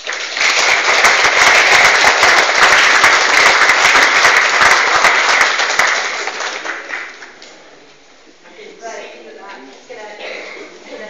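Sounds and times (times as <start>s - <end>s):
audience applauding: 0.0s - 7.4s.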